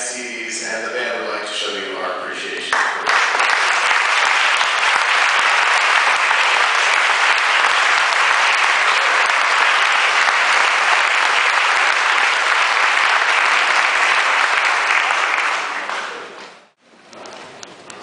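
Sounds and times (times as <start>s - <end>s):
audience applauding: 2.7s - 16.8s.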